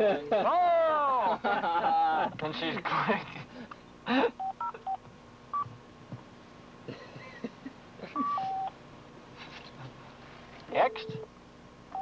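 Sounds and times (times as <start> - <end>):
phone keypad beeps: 8.2 - 8.7, 10.8 - 11.3.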